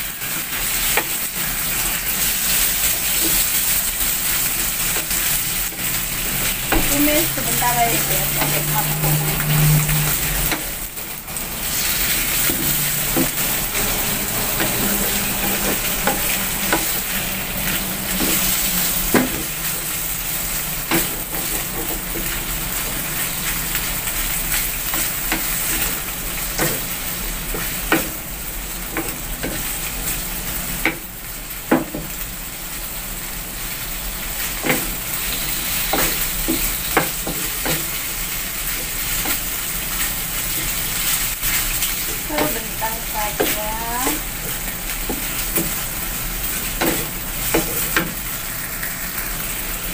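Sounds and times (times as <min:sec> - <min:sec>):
beef sizzling in a wok: 0:00.0 - 0:49.9
wooden spatula scraping a pan: 0:00.2 - 0:10.8, 0:11.4 - 0:19.9, 0:34.4 - 0:46.0.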